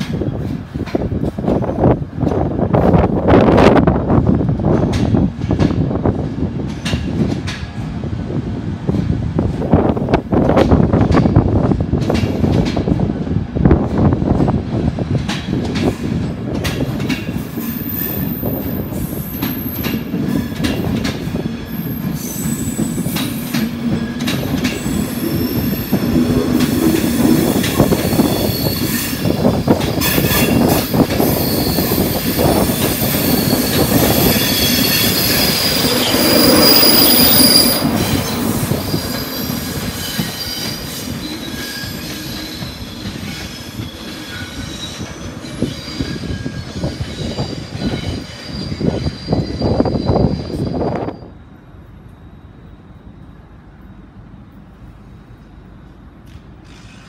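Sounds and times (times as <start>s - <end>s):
train wheels rumbling on rail: 0.0s - 57.0s
wheel flange squeal: 24.6s - 51.4s.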